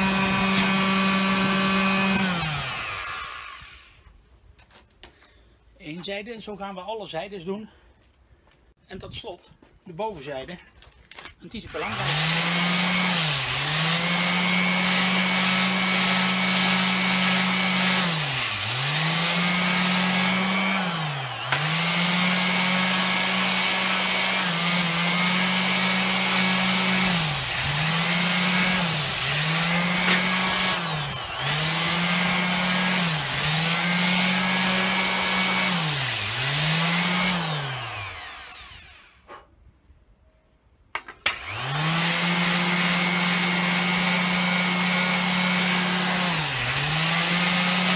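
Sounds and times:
electric sander running on wood: 0:00.0 - 0:03.9, 0:11.8 - 0:39.1, 0:41.4 - 0:47.9.

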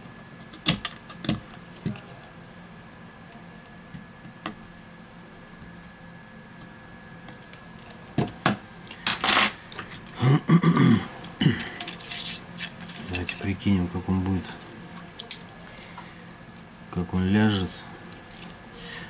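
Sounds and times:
metal parts clicking and scraping: 0:11.7 - 0:13.6.

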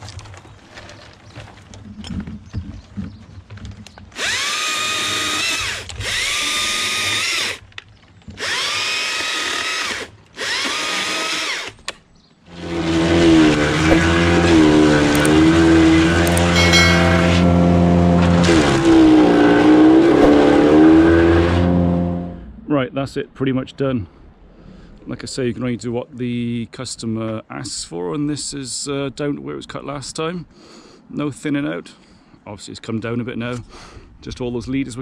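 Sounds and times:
chainsaw cutting branches: 0:04.1 - 0:07.7, 0:08.3 - 0:11.9, 0:12.5 - 0:21.8
wood chipper running: 0:04.2 - 0:11.7, 0:12.5 - 0:21.8.

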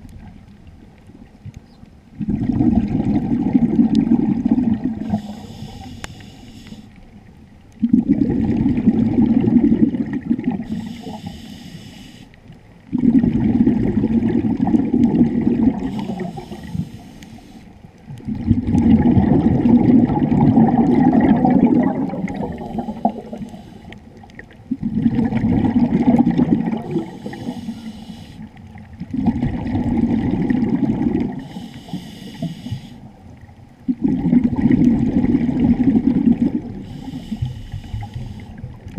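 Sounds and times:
exhaled bubbles gushing: 0:02.1 - 0:05.8, 0:07.7 - 0:11.3, 0:12.8 - 0:17.0, 0:18.0 - 0:31.6, 0:32.4 - 0:38.9
regulator inhalation hiss: 0:05.1 - 0:07.0, 0:10.7 - 0:12.4, 0:15.8 - 0:17.7, 0:22.6 - 0:24.0, 0:27.0 - 0:28.5, 0:31.4 - 0:33.1, 0:36.8 - 0:38.6.

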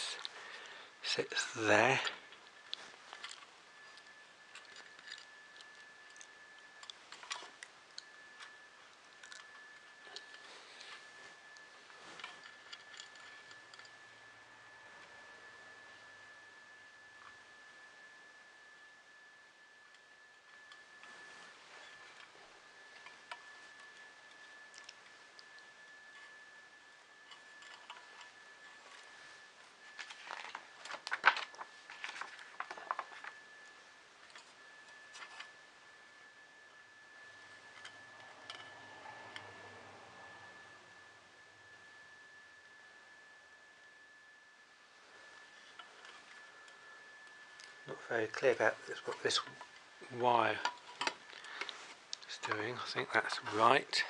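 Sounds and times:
faint high-pitched whine: 0:00.0 - 0:54.0
small parts clicking and rattling: 0:01.8 - 0:10.4, 0:12.2 - 0:13.9, 0:27.3 - 0:28.3, 0:30.0 - 0:33.4, 0:50.5 - 0:53.4.

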